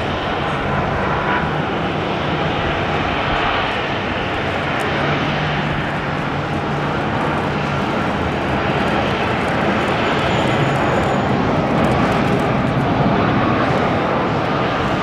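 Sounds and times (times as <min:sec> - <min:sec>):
jet engines running: 0:00.0 - 0:15.0.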